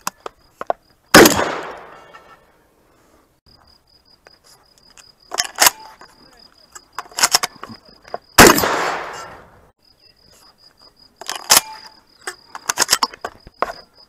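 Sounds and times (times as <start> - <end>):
faint insect chirping: 0.0 - 1.1, 1.9 - 8.4, 9.2 - 14.0
shotgun shot: 1.1 - 2.1, 8.4 - 9.5.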